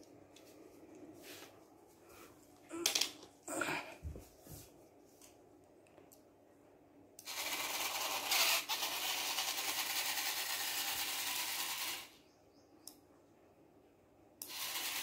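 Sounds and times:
small motors whirring: 0:07.2 - 0:12.2, 0:14.4 - 0:15.0.

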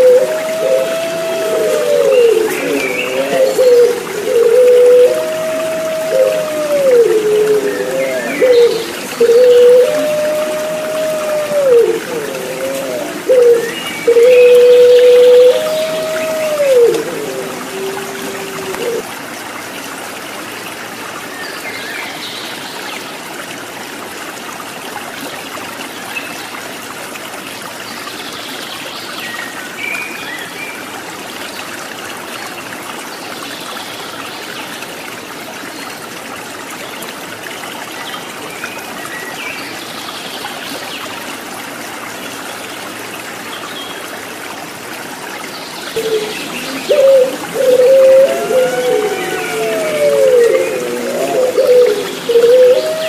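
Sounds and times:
dove cooing: 0:00.0 - 0:19.0, 0:46.0 - 0:53.0
stream trickling: 0:00.0 - 0:53.0.

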